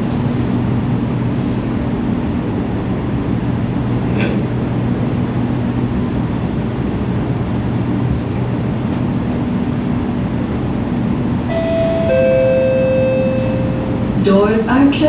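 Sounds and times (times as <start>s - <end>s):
train equipment humming: 0.0s - 15.0s
electronic door chime tone: 11.5s - 14.2s.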